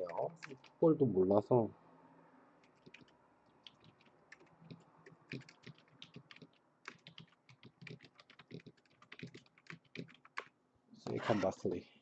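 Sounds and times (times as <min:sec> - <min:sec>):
faint keyboard typing: 0:00.0 - 0:00.8, 0:02.6 - 0:10.6.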